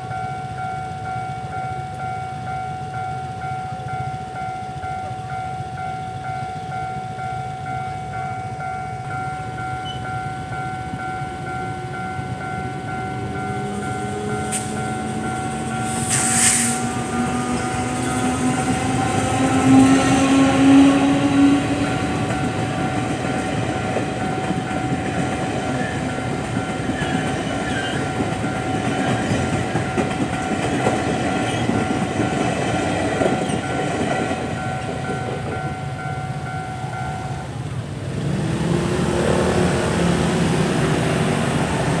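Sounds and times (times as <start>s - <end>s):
level crossing bell ringing: 0.0s - 26.9s
locomotive hum rising in pitch: 7.6s - 33.8s
train cars clattering over rails: 9.5s - 36.5s.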